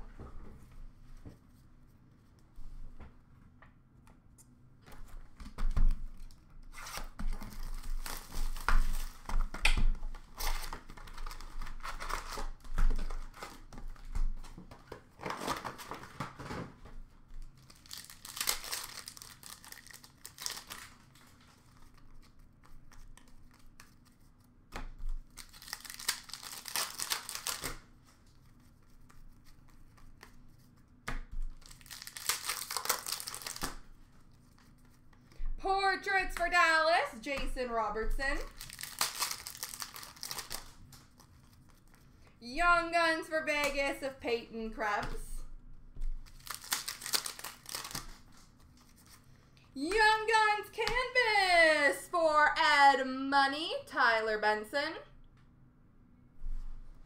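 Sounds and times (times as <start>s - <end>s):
card pack wrappers tearing: 6.7s - 9.3s, 10.3s - 13.7s, 17.6s - 22.0s, 25.2s - 27.8s, 31.5s - 33.8s, 38.4s - 41.6s, 46.2s - 49.2s
cards being handled: 17.4s - 35.4s, 38.4s - 42.2s, 46.2s - 49.3s.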